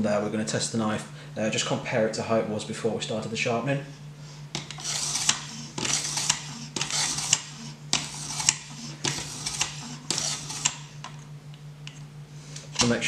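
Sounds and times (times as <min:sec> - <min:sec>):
steady low hum: 0:00.0 - 0:13.0
whetstone scraping knife edge: 0:04.6 - 0:11.0.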